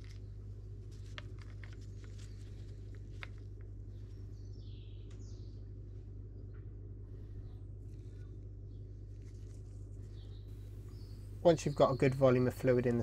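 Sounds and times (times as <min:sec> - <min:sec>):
steady low hum: 0:00.0 - 0:13.0
bird chirp: 0:03.9 - 0:08.9, 0:10.0 - 0:13.0.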